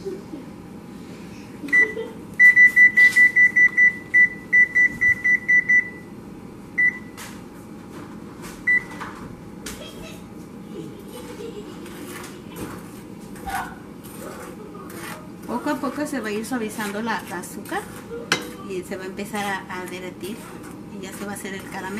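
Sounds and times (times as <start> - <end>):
oven control panel beeps: 1.7 - 6.2, 6.8 - 7.2, 8.7 - 9.0.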